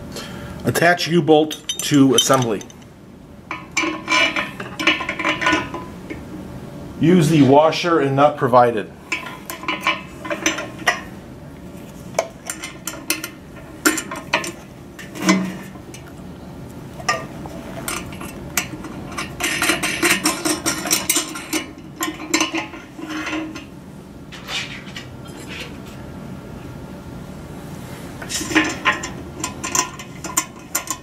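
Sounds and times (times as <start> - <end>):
small metal parts clinking: 1.4 - 2.9.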